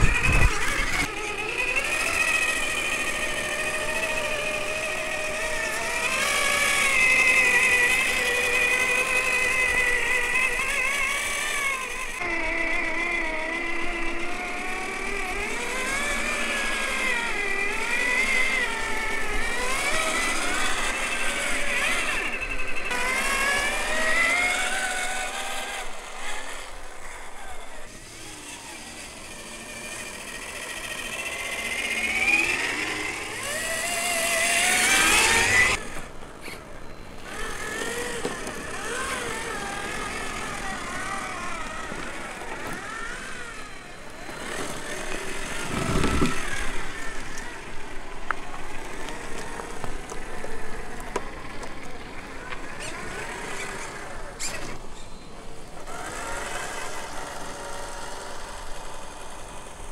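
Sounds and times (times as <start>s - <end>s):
electric motors whining: 0.0s - 59.9s.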